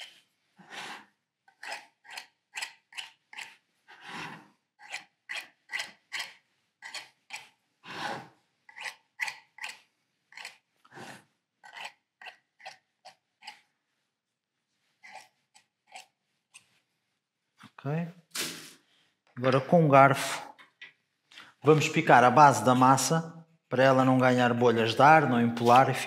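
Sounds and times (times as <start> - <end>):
knife cutting pastry: 1.5 - 4.1, 4.8 - 7.6.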